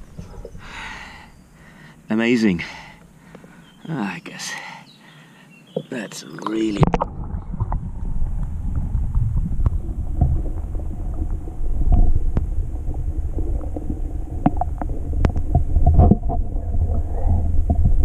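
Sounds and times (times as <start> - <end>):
underwater river rumble: 0.0 - 3.6, 6.3 - 18.0
underwater clicks and ticks: 2.9 - 3.5, 5.8 - 18.0.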